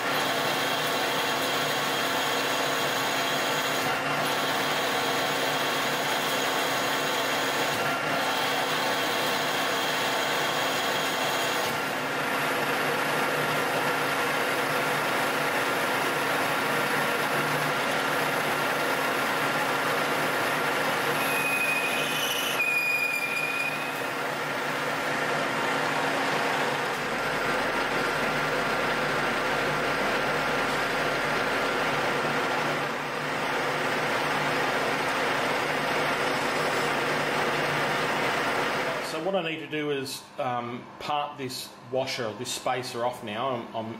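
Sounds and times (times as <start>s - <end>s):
lathe headstock whine: 0.0s - 39.3s
high-pitched cutting squeal: 21.1s - 24.2s.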